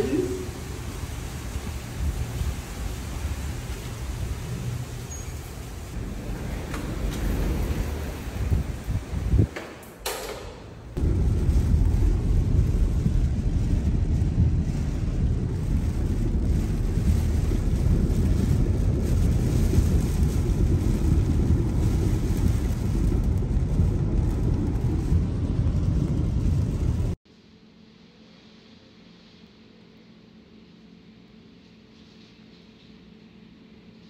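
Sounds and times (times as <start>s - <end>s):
rain wind and tyre spray rumble: 0.0s - 27.2s.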